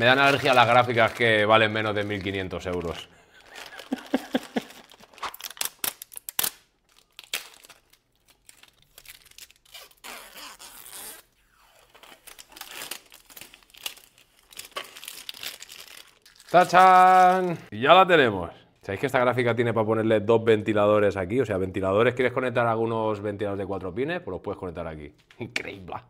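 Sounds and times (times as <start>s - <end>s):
plastic film peeling and crinkling: 0.0s - 17.7s.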